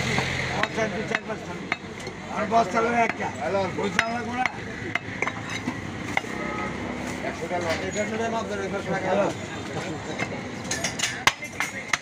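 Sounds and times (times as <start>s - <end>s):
people chattering: 0.0s - 12.0s
cleaver chopping meat on wood: 3.0s - 5.3s, 11.2s - 12.0s.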